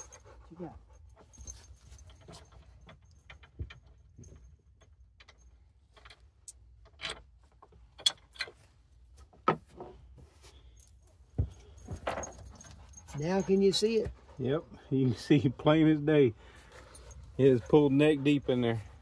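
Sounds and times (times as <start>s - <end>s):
metallic clinks and clicks: 0.0s - 7.2s, 10.7s - 14.0s.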